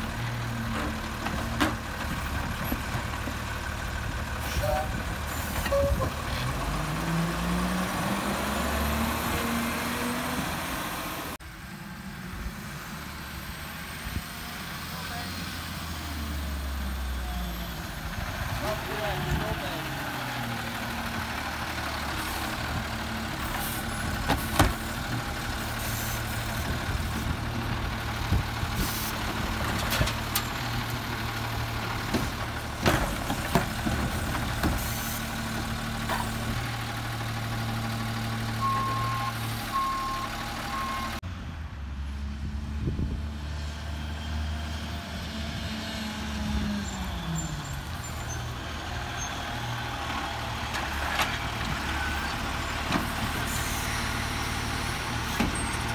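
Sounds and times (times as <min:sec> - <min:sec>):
garbage truck diesel engine running: 0:00.0 - 0:41.2.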